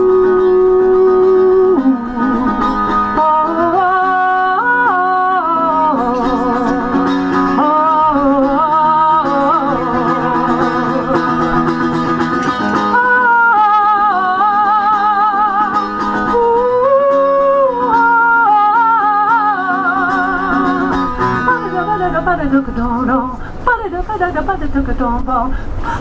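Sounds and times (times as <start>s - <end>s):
strummed mandolin: 0.0s - 25.3s
woman singing with vibrato: 0.0s - 26.0s.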